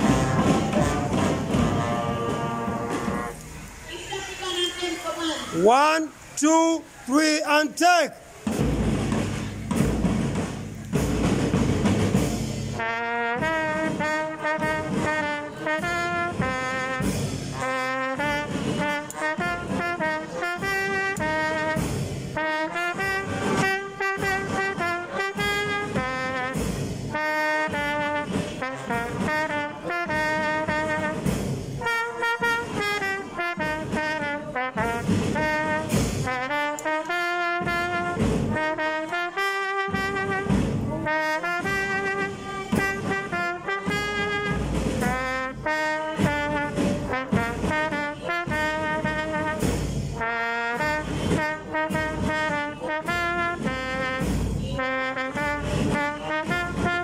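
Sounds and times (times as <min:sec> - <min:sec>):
bass drum beats: 0:00.0 - 0:03.5, 0:08.4 - 0:12.8
brass band playing: 0:00.0 - 0:57.0.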